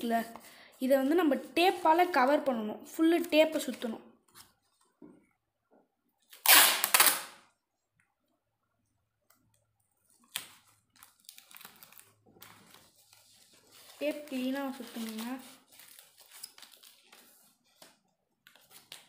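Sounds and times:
paper crackling rustle: 9.8 - 19.0.

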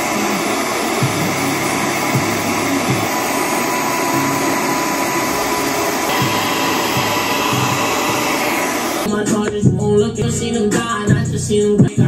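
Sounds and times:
hair dryer blowing: 0.0 - 9.1.

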